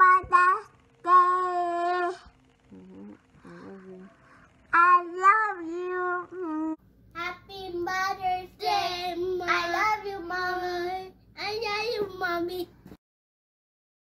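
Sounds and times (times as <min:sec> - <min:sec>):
children singing unaccompanied: 0:07.2 - 0:12.2.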